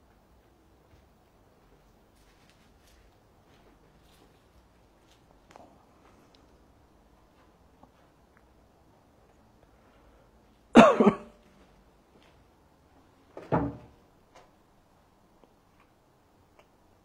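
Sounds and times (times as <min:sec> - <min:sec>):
person coughing: 0:10.7 - 0:11.4.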